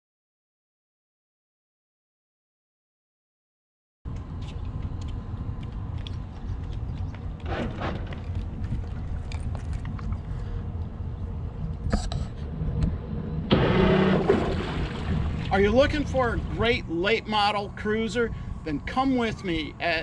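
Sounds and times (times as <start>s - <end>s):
water rushes: 13.5s - 17.0s.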